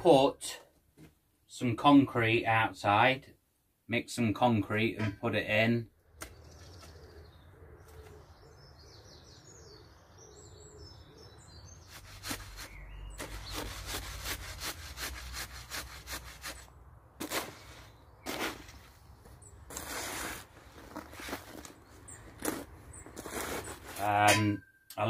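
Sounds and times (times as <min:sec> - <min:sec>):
birds chirping faintly: 0:03.9 - 0:14.4, 0:16.5 - 0:25.0
shovel scraping gravelly concrete: 0:11.9 - 0:24.6.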